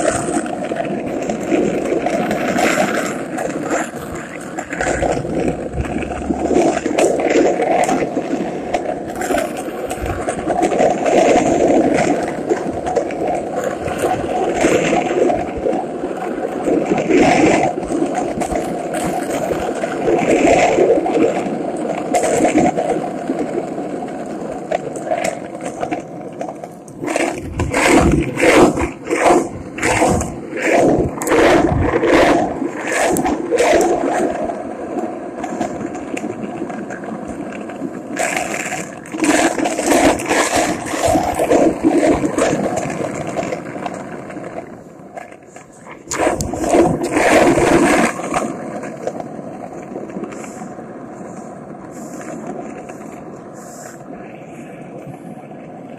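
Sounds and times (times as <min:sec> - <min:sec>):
skateboard wheels rolling on asphalt: 0:00.0 - 0:55.9.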